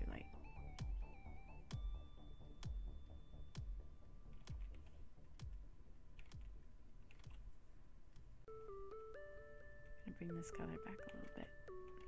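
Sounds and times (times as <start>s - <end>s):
electronic kick drum thuds: 0.0s - 6.6s
faint held synth notes: 8.4s - 12.0s.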